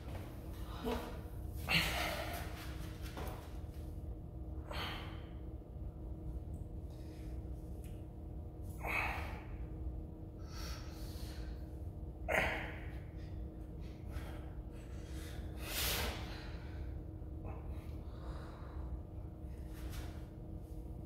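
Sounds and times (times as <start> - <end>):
low steady hum: 0.0 - 21.0
man breathing hard: 0.5 - 2.8, 4.6 - 5.5, 8.7 - 9.7, 10.3 - 20.1.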